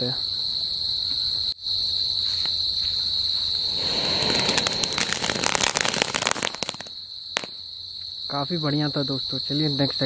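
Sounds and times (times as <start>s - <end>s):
firecracker fuse hiss: 3.5s - 7.6s
firecracker crackling pops: 3.6s - 7.6s.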